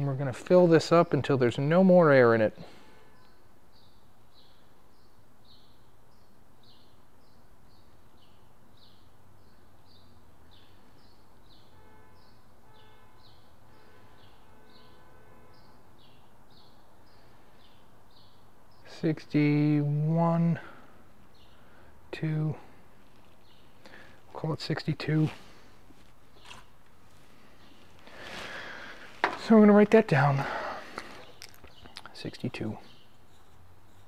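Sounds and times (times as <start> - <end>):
steady background hum: 16.0 - 34.0
small bird chirping: 31.2 - 34.0.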